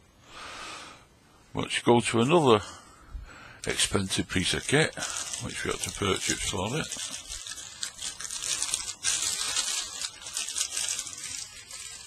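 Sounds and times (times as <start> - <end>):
plastic bag rustling: 3.7 - 12.0.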